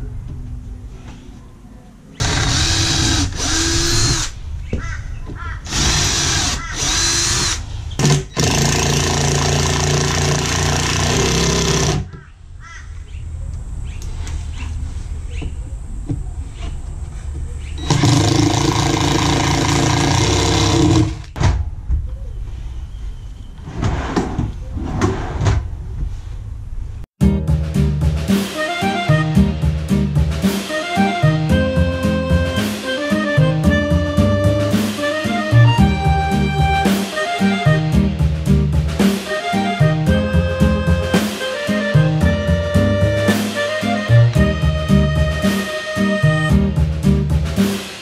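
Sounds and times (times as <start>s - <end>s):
cordless drill motor whine: 2.2s - 4.3s, 5.7s - 12.0s.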